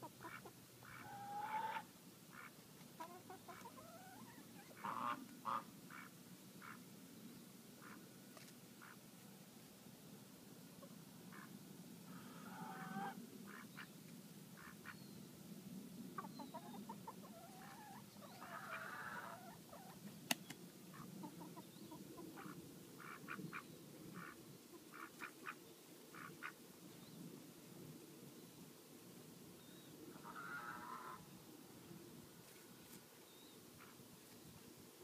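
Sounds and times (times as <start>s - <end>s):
fowl clucking and squawking: 0.0s - 6.8s, 12.1s - 13.9s, 16.2s - 20.0s, 20.9s - 25.6s, 30.1s - 31.3s.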